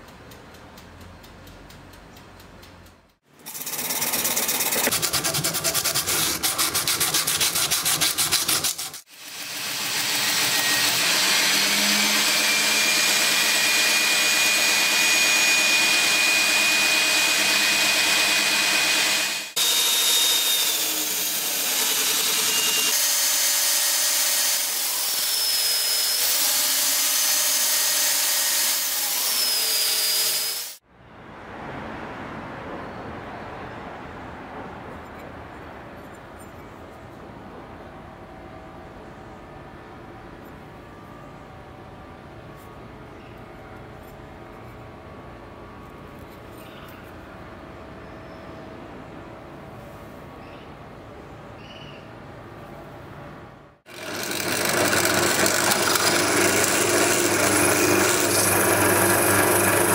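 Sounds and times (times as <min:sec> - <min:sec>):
rapid rasping strokes on metal: 0:03.4 - 0:09.1, 0:53.9 - 0:59.9
power tool motor on metal: 0:08.3 - 0:30.8, 0:53.9 - 0:59.9.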